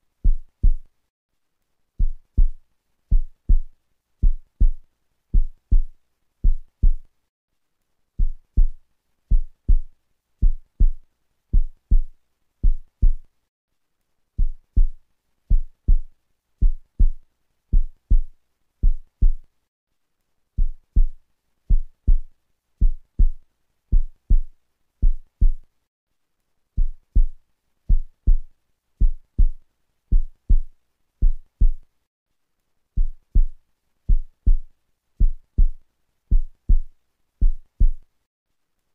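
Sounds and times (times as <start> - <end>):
heartbeat thumps: 0.2 - 0.9, 2.0 - 7.1, 8.2 - 13.3, 14.4 - 19.4, 20.6 - 25.6, 26.8 - 31.8, 33.0 - 38.0.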